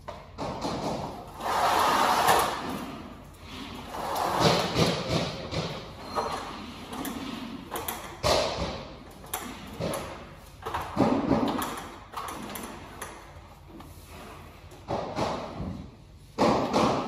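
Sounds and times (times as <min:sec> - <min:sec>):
echoing knocks and thuds: 0:04.4 - 0:05.9.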